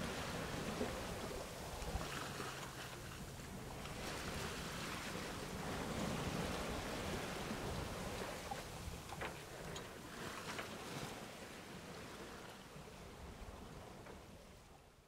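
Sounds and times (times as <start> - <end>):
water noise: 0.0 - 14.8
steady wind: 0.0 - 15.0.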